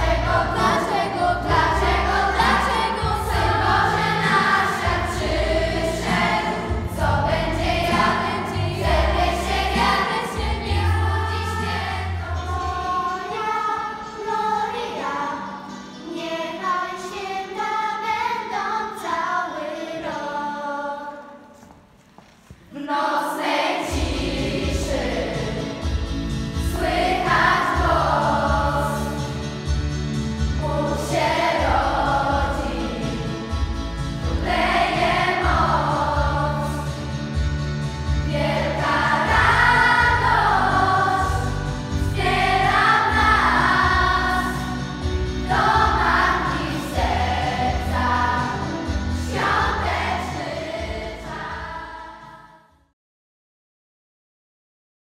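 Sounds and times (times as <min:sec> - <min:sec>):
steady low notes: 0:00.0 - 0:12.6, 0:23.9 - 0:51.8
children's choir singing a carol: 0:00.0 - 0:21.7, 0:22.7 - 0:52.8.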